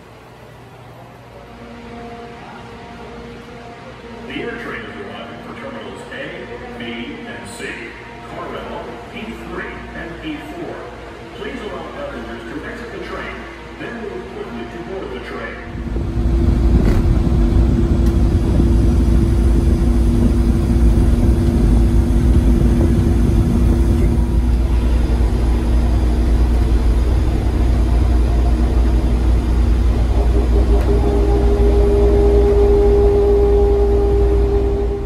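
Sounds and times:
monorail rumbling: 0.0s - 35.0s
higher whine: 15.5s - 35.0s.

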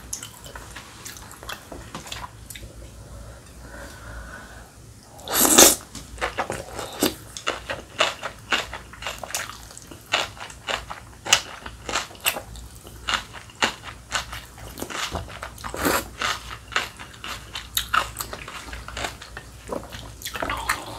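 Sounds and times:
woman slurping noodles: 5.2s - 5.8s.

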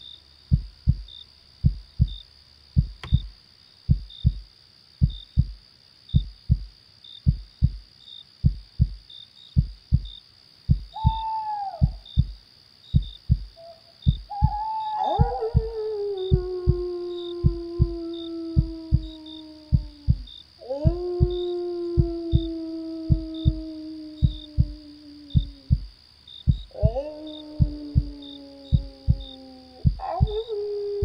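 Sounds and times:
crickets chirping: 0.0s - 31.0s
heartbeat thumping: 0.5s - 2.2s, 2.8s - 3.3s, 3.9s - 9.0s, 9.6s - 31.0s
falling animal call: 11.0s - 12.0s, 13.6s - 16.4s.

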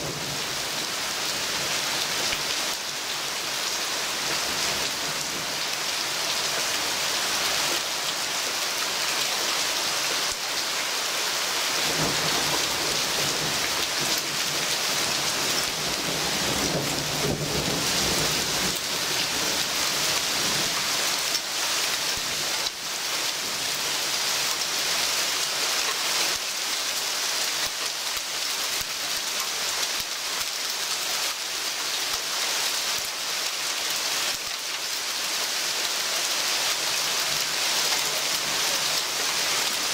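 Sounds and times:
heavy rain on foliage: 0.0s - 39.9s.

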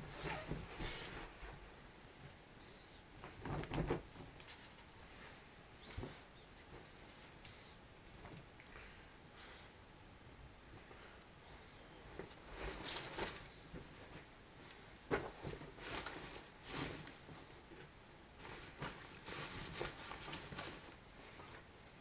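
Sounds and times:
clothes rustling: 3.2s - 8.5s, 12.1s - 21.7s.

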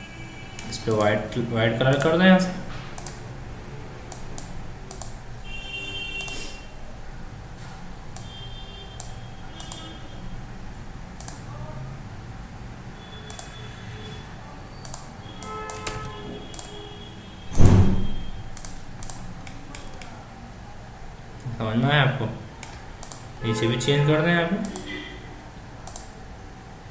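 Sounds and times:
mouse and keyboard clicks: 1.9s - 2.2s, 3.0s - 3.2s, 4.1s - 5.2s, 6.2s - 6.5s, 9.0s - 9.9s, 11.2s - 11.5s, 13.3s - 13.5s, 14.8s - 16.7s, 18.6s - 20.2s, 22.6s - 23.3s, 24.6s - 24.9s, 25.8s - 26.2s.

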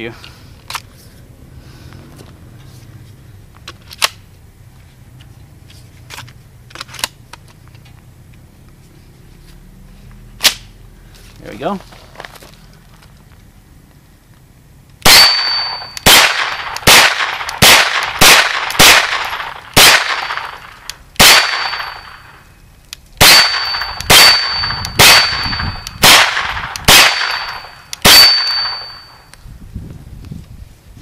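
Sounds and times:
rifle gunshots: 15.0s - 22.4s, 23.2s - 29.1s
high ringing after shots: 15.0s - 22.6s, 23.2s - 29.3s.

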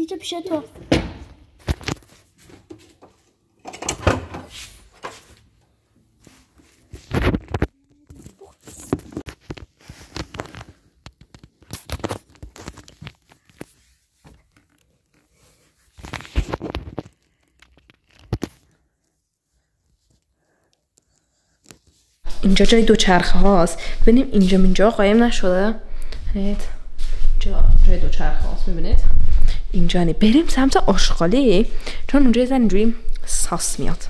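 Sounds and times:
rustling and crinkling: 1.2s - 3.5s, 4.4s - 25.6s.

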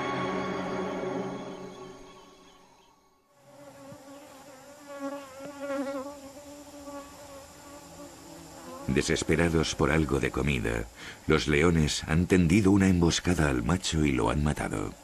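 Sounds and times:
flies buzzing: 3.3s - 11.3s.

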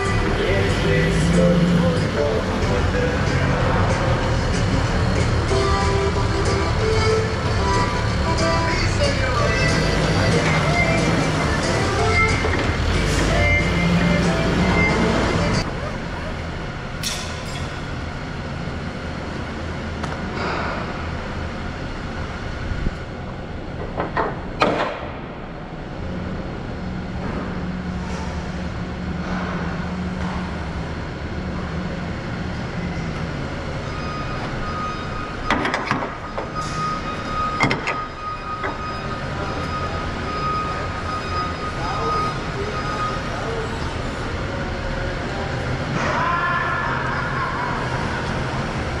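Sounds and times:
large engine idling: 0.0s - 49.0s
metallic knocks and clanks: 17.0s - 17.9s, 35.4s - 36.8s.

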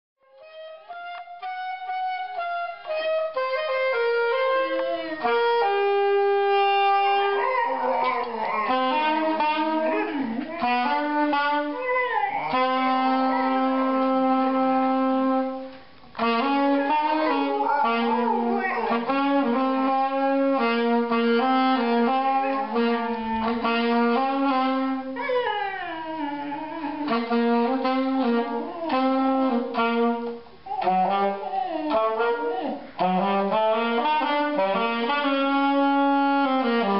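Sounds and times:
music of held stepping notes: 0.2s - 25.6s, 26.3s - 36.9s
dog howling: 4.3s - 14.3s, 16.4s - 20.7s, 21.8s - 29.9s, 30.7s - 32.9s.

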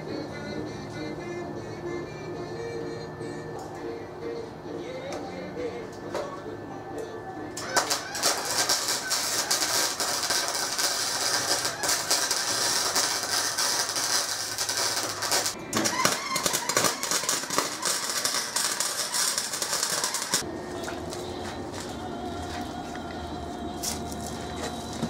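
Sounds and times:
arc welding crackle and sizzle: 7.6s - 25.0s.

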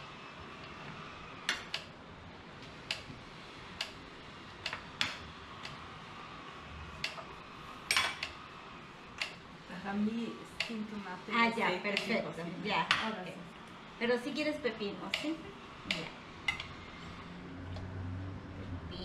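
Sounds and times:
utensils clicking against dishes: 7.0s - 7.3s.

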